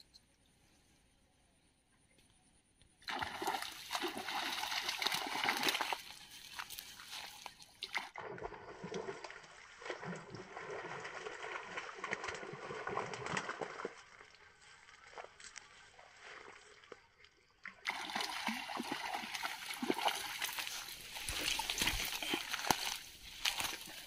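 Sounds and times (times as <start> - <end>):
fish splashing at water surface: 3.1 - 13.8, 17.8 - 24.0.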